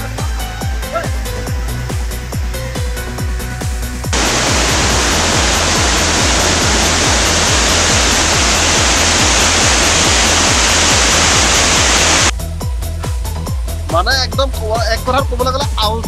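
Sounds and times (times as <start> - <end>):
electronic music with bass beat: 4.2 - 12.3
waterfall rushing: 4.2 - 12.3.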